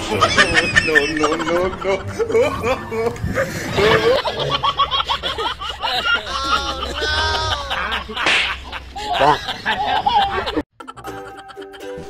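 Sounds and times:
giggling and snickering: 0.0s - 11.8s
background music: 10.8s - 12.0s.

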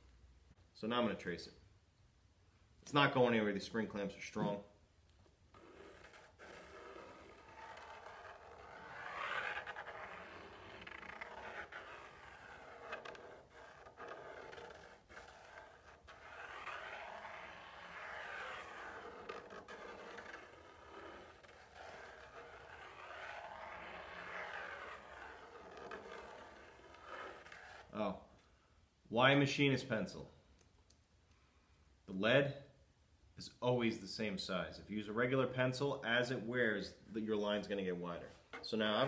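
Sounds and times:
pencil scratching on wood: 5.5s - 27.9s.

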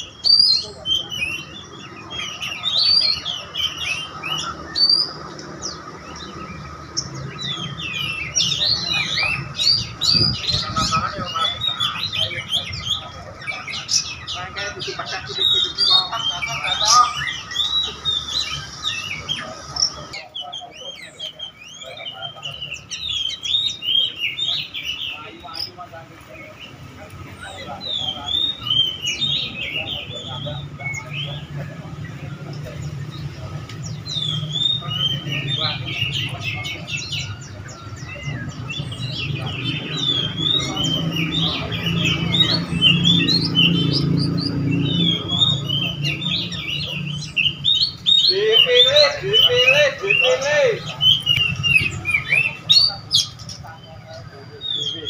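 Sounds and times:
songbirds chirping and whistling: 0.0s - 55.0s.

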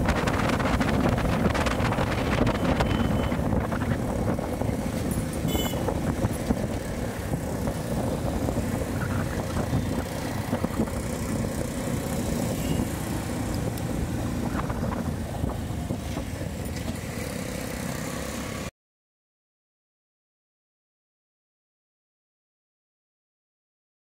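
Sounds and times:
wind rumble on microphone: 0.0s - 17.1s
motorcycle engine running: 0.0s - 18.0s.

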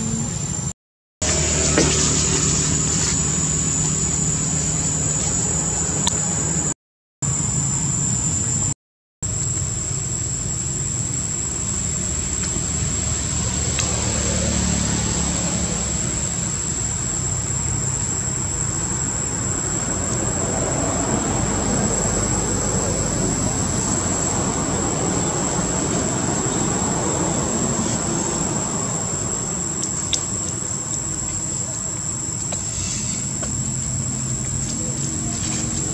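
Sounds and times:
high-pitched whine: 0.0s - 35.9s
low rumble and hiss: 9.3s - 35.9s.

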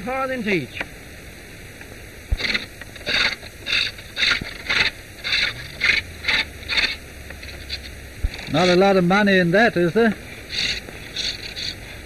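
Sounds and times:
steady background hiss: 0.0s - 12.0s
tool scraping wood: 2.4s - 8.9s, 10.5s - 12.0s.

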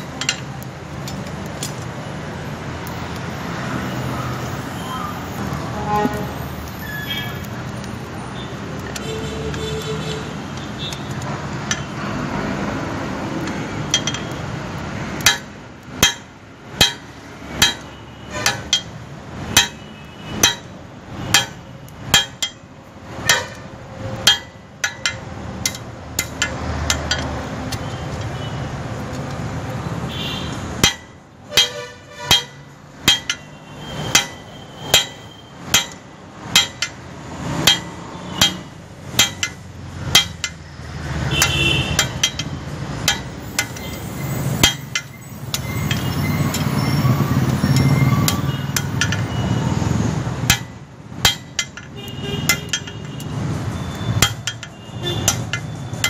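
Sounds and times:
hammer striking steel on anvil: 13.9s - 14.4s, 15.2s - 19.0s, 19.6s - 22.6s, 23.2s - 27.4s, 30.8s - 40.6s, 41.3s - 46.8s, 47.7s - 49.4s, 50.4s - 53.2s, 54.2s - 56.0s.

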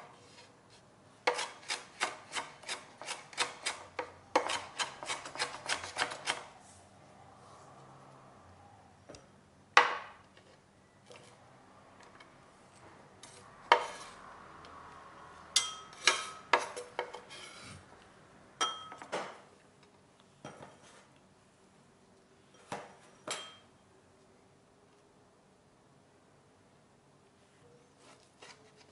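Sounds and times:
knife clinking glass bowl: 15.6s - 16.8s, 18.6s - 19.1s, 23.3s - 23.7s.

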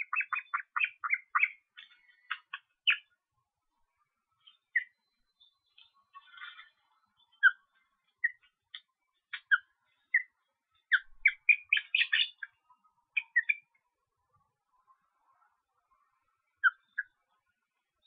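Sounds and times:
young ospreys chirping: 0.0s - 3.1s, 10.9s - 12.6s, 13.2s - 13.6s
rustle: 5.4s - 9.5s.

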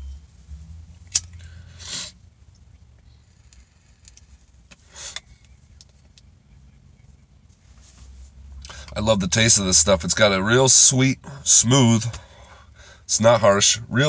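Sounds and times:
breathy exhale: 12.2s - 13.1s.

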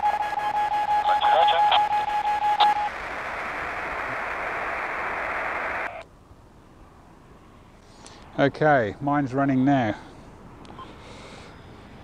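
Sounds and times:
beacon steady tone: 0.0s - 3.0s
receiver hiss: 1.0s - 6.1s.

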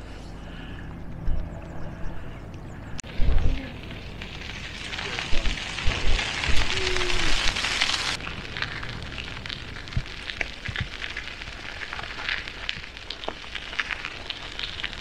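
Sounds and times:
crackling haze: 0.0s - 15.0s
bicycle tyres on gravel: 3.0s - 15.0s.

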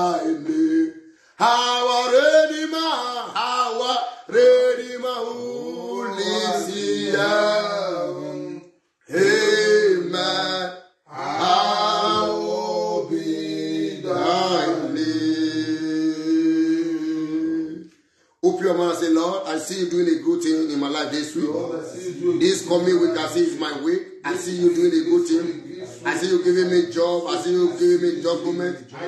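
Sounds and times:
man singing a chant: 0.0s - 8.6s, 11.1s - 17.8s, 24.3s - 29.0s.

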